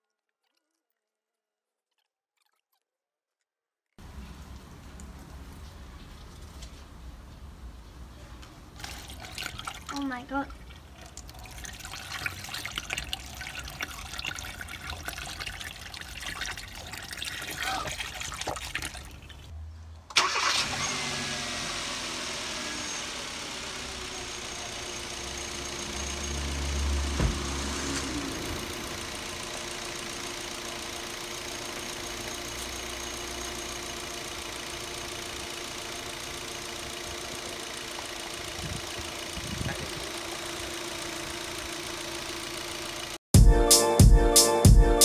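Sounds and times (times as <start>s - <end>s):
car engine starting and idling: 19.5s - 43.2s.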